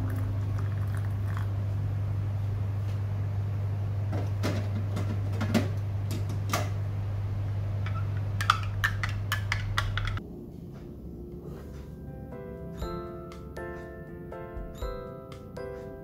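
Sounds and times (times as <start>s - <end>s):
low hum: 0.0s - 13.2s.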